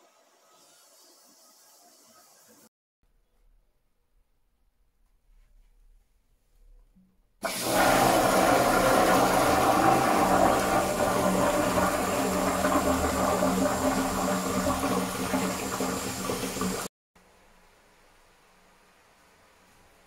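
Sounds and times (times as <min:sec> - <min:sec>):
toilet flushing: 0:07.4 - 0:16.9.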